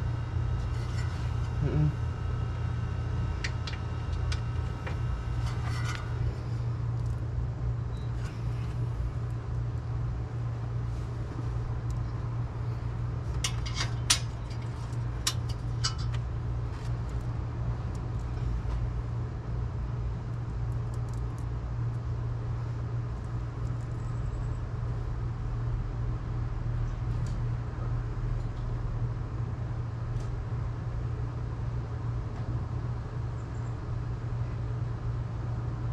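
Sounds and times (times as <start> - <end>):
vehicle engine humming: 0.0 - 19.2.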